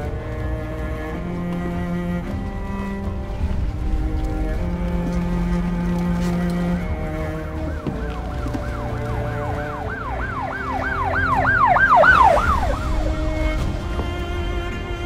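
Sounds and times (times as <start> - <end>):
background music tones: 0.0 - 15.0
emergency siren wailing: 3.9 - 14.8.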